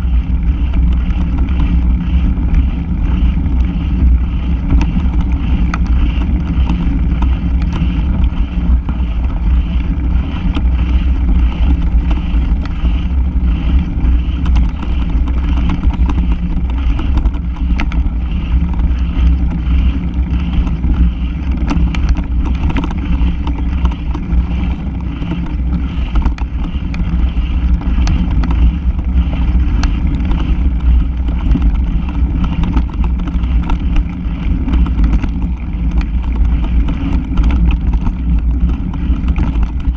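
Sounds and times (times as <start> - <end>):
bike clicks and rattles: 0.0 - 39.9
low rumble of bike vibration: 0.0 - 39.9.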